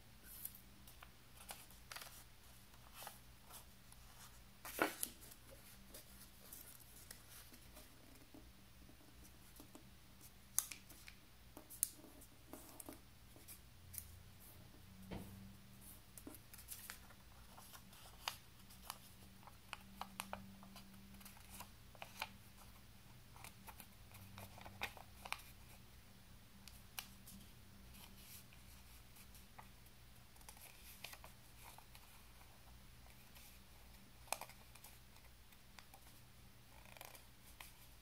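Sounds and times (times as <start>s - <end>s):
paper rustling and crackling: 0.2s - 7.8s.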